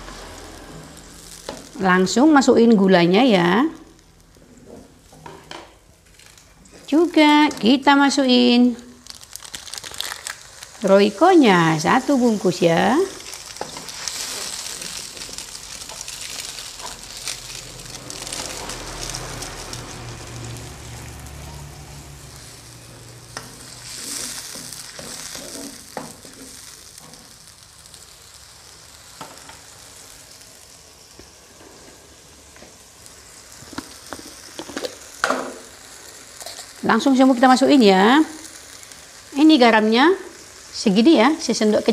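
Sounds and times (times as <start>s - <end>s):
spatula scraping a wok: 0.0s - 1.8s, 11.9s - 28.0s
paste sizzling in hot oil: 0.0s - 41.9s.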